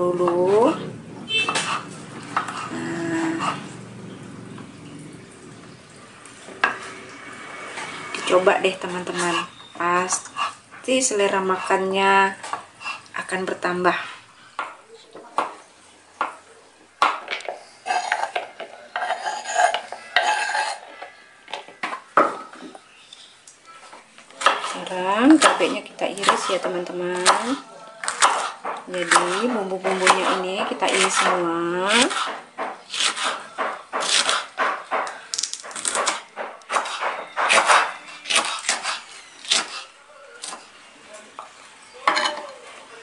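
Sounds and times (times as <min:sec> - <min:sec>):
knife scraping cutting board: 0:00.3 - 0:03.7, 0:09.1 - 0:11.8, 0:17.4 - 0:21.1, 0:24.4 - 0:40.7
knife crunching through chilies: 0:27.2 - 0:34.6, 0:35.3 - 0:40.7.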